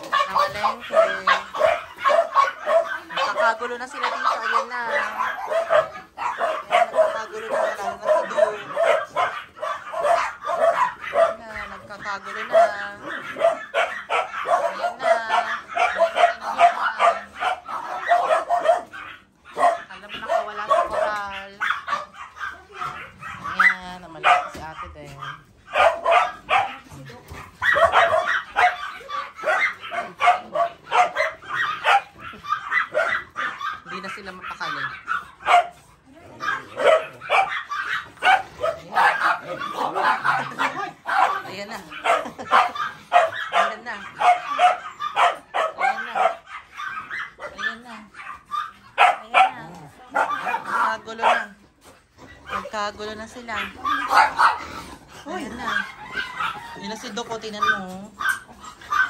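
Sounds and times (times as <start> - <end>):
small dogs barking and yipping: 0.0 - 59.0.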